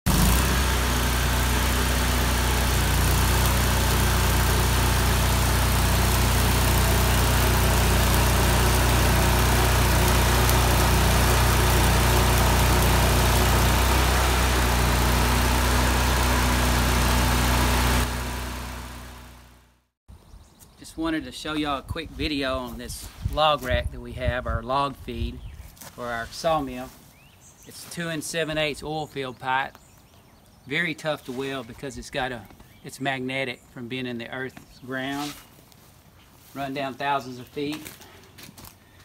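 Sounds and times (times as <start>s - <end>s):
welding arc crackling and hissing: 0.1s - 19.1s
low machine hum: 0.2s - 19.5s.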